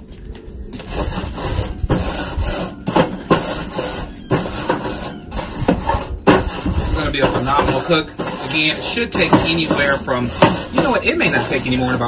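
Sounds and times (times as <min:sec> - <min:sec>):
wire brush scraping grill grate: 0:00.8 - 0:12.0.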